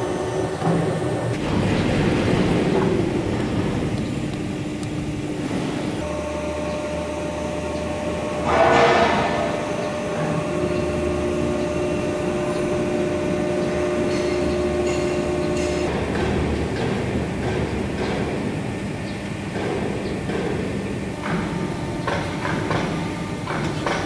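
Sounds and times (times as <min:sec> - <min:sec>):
steady whine: 0:00.0 - 0:15.9
press machine humming: 0:00.0 - 0:17.9
loud burst of noise: 0:01.3 - 0:06.9, 0:08.0 - 0:11.6.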